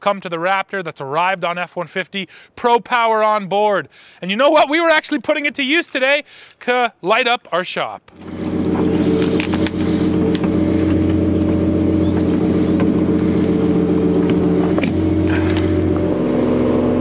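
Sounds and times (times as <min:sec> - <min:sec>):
pickup engine idling: 0:08.1 - 0:17.0.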